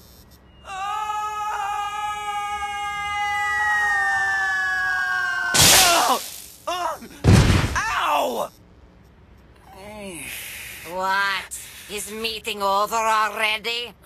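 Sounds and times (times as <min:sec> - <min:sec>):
long scream sinking in pitch: 0:00.7 - 0:05.6
loud crash: 0:05.5 - 0:06.5, 0:07.2 - 0:07.9.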